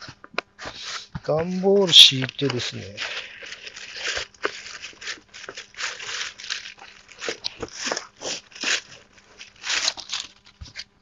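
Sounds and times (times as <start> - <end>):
cardboard rustling and scraping: 0.0 - 11.0.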